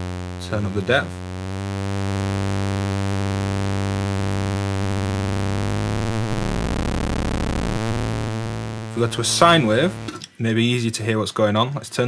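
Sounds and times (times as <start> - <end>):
low sawtooth synth drone: 1.2 - 10.1.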